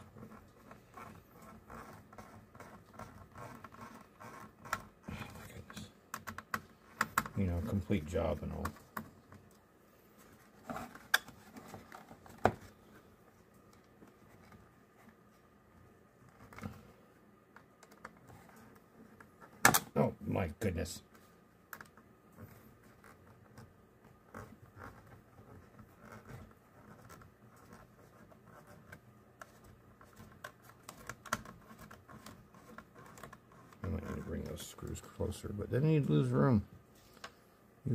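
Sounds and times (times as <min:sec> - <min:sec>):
plastic parts clicking and tapping: 0:06.1 - 0:07.4.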